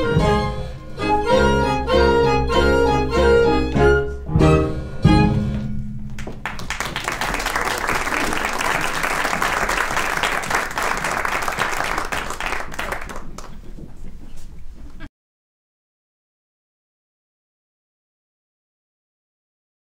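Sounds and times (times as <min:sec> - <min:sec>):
audience applauding: 0:06.2 - 0:13.7.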